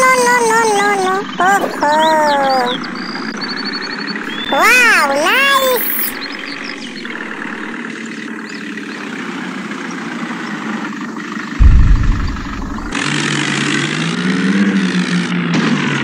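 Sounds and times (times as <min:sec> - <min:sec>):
deep explosion boom: 0:11.6 - 0:13.0
engine sound effect: 0:11.6 - 0:13.0.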